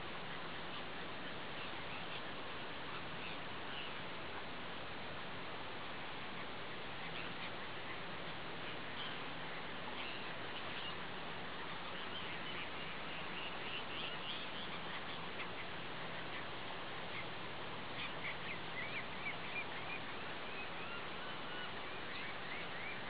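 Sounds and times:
steady background hiss: 0.0s - 23.0s.

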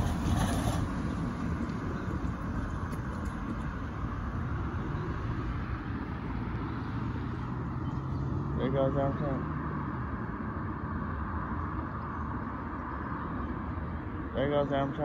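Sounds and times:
wind rumble on microphone: 0.0s - 8.5s
vehicles driving by: 0.0s - 15.0s.

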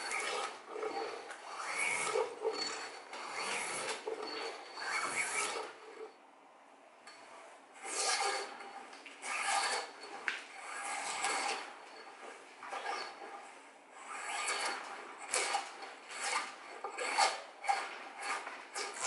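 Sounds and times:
drawknife rasping along wood: 0.0s - 5.8s, 7.8s - 11.7s, 14.1s - 19.0s.

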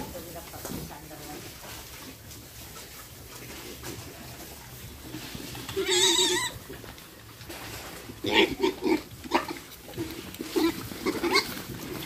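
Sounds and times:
piglets squealing: 5.6s - 6.6s, 8.2s - 9.6s, 10.5s - 11.6s.

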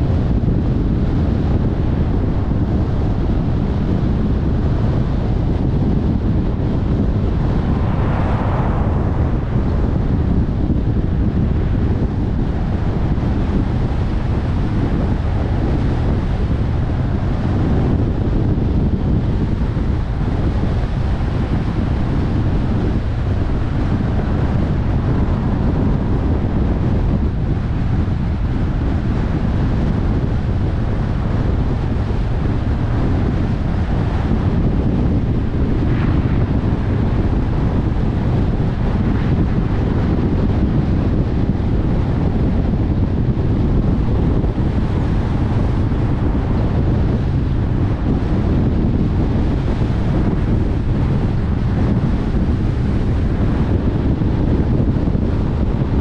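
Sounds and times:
car driving: 5.0s - 12.8s.

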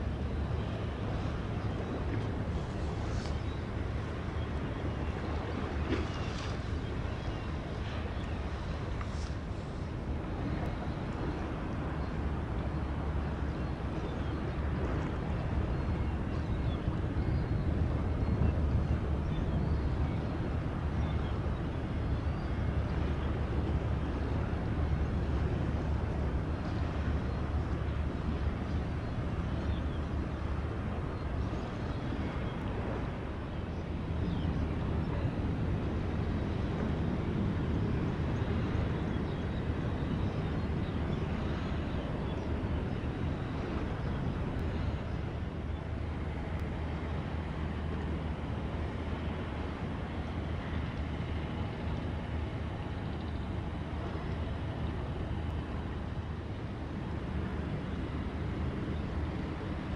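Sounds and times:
boat engine drone: 0.0s - 59.9s
water noise: 0.0s - 59.9s
wind: 0.0s - 59.9s.

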